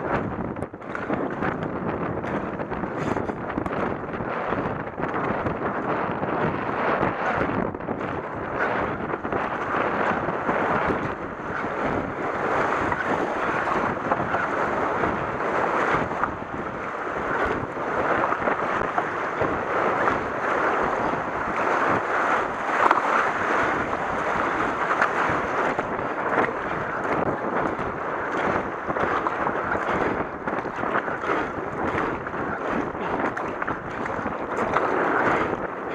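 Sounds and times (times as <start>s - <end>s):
paddle strokes splashing: 0.0s - 35.9s
wind on microphone: 0.0s - 35.9s
river rushing over rapids: 9.6s - 35.9s.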